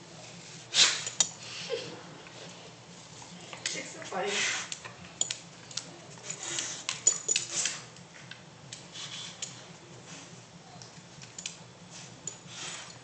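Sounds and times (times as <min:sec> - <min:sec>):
dog rustling on dryer sheet: 0:03.8 - 0:04.7.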